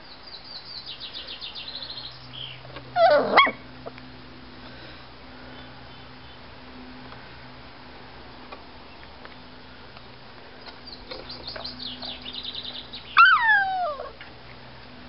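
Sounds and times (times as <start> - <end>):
puppy yelping: 3.0 - 3.6, 13.2 - 14.2.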